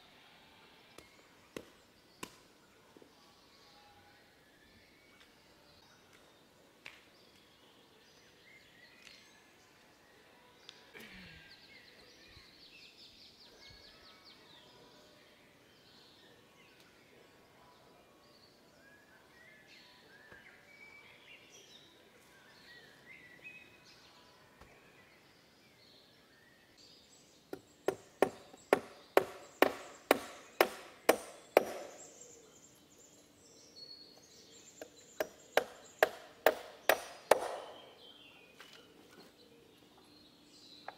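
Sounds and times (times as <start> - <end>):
birds chirping: 0.9 - 40.9
hatchet striking wood: 27.5 - 32.0, 34.8 - 37.9.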